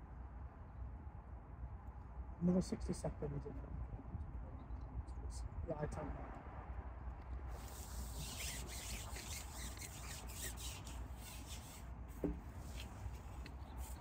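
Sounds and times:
rustling and rubbing: 0:07.5 - 0:14.0
short squeak: 0:08.2 - 0:11.6.

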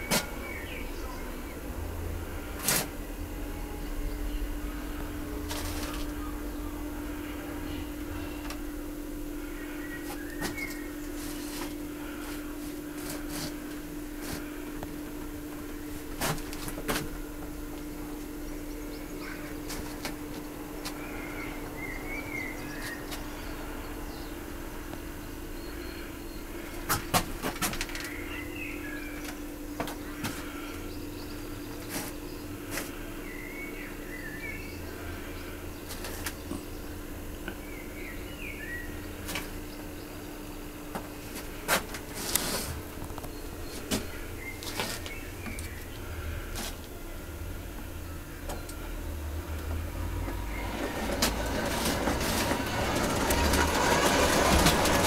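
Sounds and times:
small birds chirping: 0:00.0 - 0:01.7, 0:09.4 - 0:12.5, 0:18.2 - 0:20.1, 0:20.7 - 0:27.1, 0:27.9 - 0:41.6, 0:42.4 - 0:54.1
steady low hum: 0:00.0 - 0:55.0.

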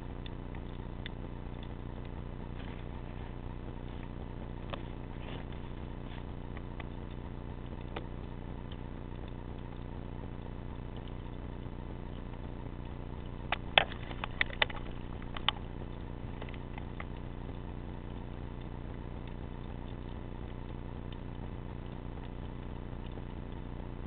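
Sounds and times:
underwater low hum: 0:00.0 - 0:24.0
sharp clicks and knocks: 0:13.2 - 0:17.2.

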